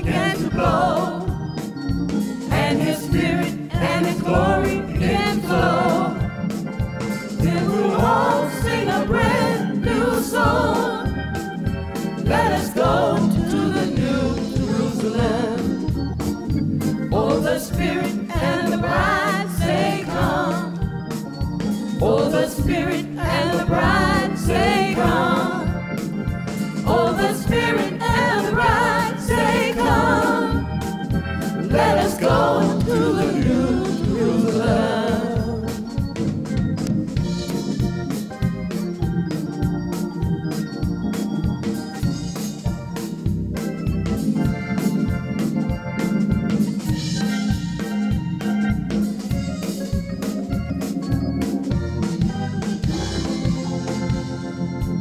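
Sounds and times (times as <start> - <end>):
voices singing gospel: 0.0 - 40.0
organ accompaniment: 0.0 - 55.0.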